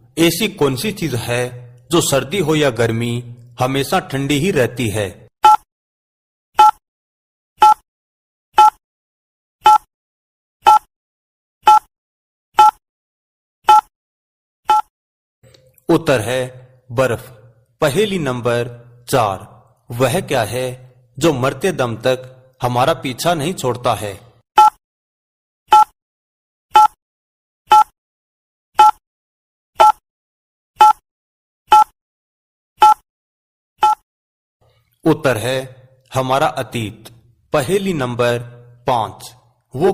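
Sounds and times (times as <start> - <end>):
timer ticking: 14.7 - 14.9, 33.8 - 34.0.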